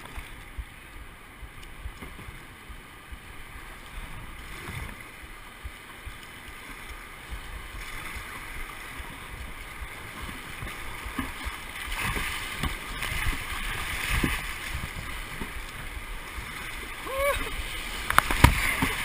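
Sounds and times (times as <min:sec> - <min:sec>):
waves splashing over bow: 0:00.0 - 0:19.0
whitewater rapids rushing: 0:15.6 - 0:19.0.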